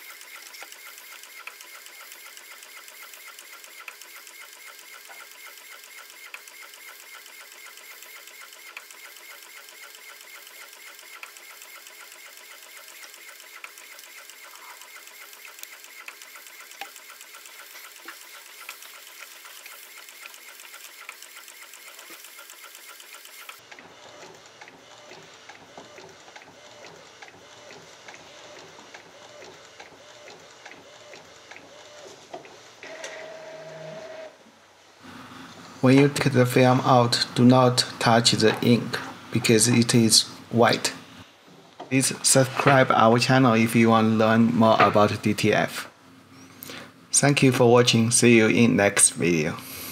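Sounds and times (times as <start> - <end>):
printer carriage shuttling: 44.6 - 45.3.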